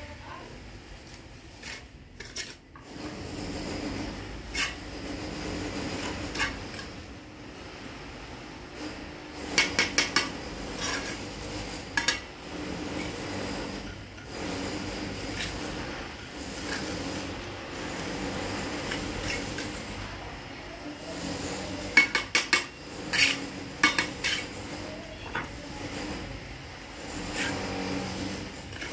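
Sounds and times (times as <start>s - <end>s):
trowel scraping mortar: 1.0s - 28.9s
trowel knocking on bricks: 9.4s - 20.0s, 21.0s - 26.2s.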